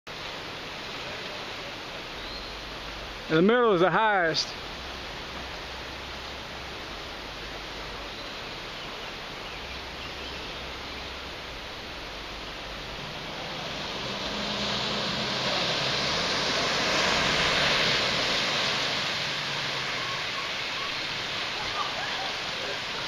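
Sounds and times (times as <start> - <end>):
floodwater rushing: 0.1 - 23.0
tyres swishing through water: 4.2 - 23.0
truck engine hum: 9.2 - 23.0.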